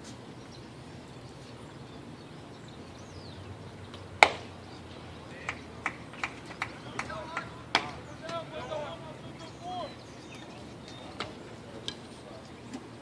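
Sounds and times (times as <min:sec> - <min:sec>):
faint ballpark background: 0:00.0 - 0:13.0
baseball bat cracking ball: 0:04.2 - 0:04.5, 0:05.4 - 0:08.5.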